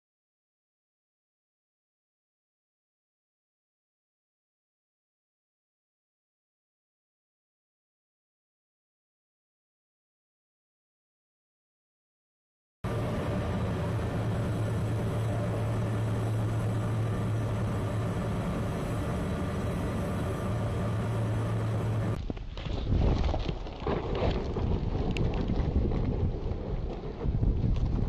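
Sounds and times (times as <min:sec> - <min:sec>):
ship machinery drone: 0:12.8 - 0:22.2
wind buffeting microphone: 0:12.9 - 0:28.0.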